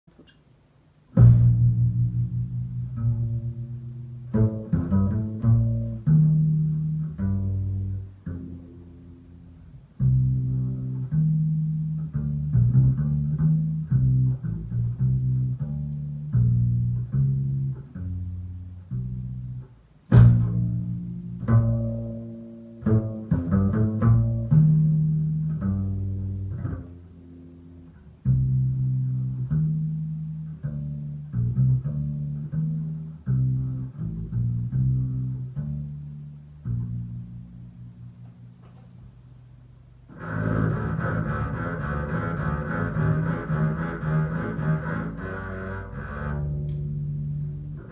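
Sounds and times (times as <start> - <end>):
double bass plucked notes: 0.1 - 47.9.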